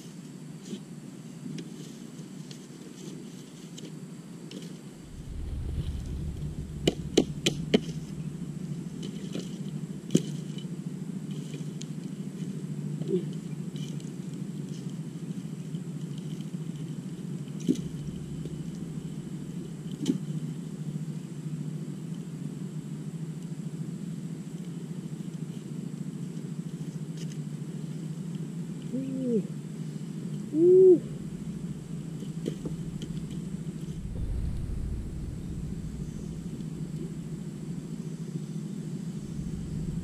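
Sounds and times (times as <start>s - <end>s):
fire low rumble: 5.0s - 11.3s, 17.2s - 21.6s, 30.2s - 40.0s.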